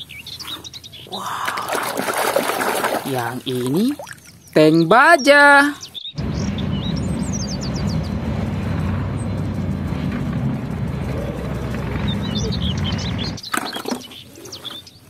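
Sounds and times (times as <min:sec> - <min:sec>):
bird chirps: 0:00.0 - 0:01.7, 0:03.2 - 0:09.6, 0:11.0 - 0:15.0
tank engine and tracks rumbling: 0:06.2 - 0:13.5.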